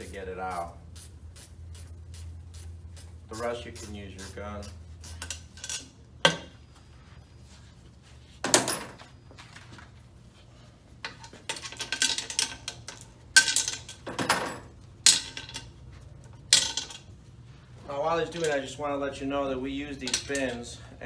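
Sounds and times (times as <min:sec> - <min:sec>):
metal tools and bolts clinking: 0:05.1 - 0:06.5, 0:08.4 - 0:09.1, 0:11.0 - 0:17.1, 0:18.2 - 0:18.8, 0:19.9 - 0:20.8.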